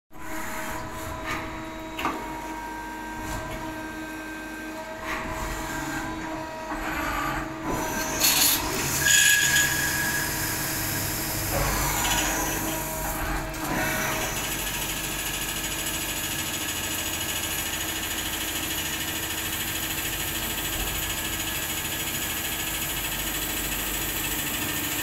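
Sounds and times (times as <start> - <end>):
lathe machine hum: 5.7 - 14.4.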